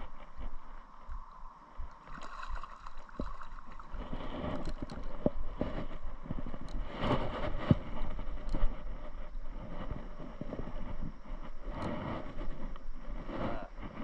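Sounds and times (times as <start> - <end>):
fish splashing in water: 2.0 - 5.0
fishing rod and reel clicks: 4.5 - 5.6, 6.6 - 6.8.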